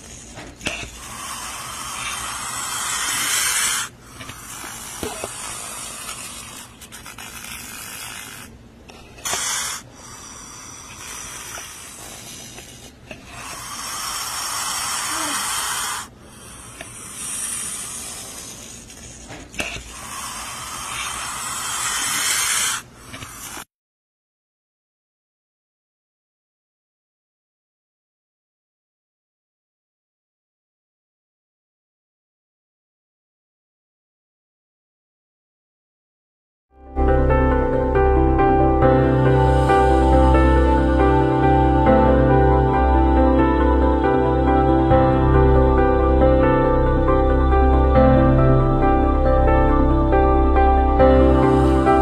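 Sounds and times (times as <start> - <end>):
snake hissing: 0.0 - 8.5, 9.2 - 23.6.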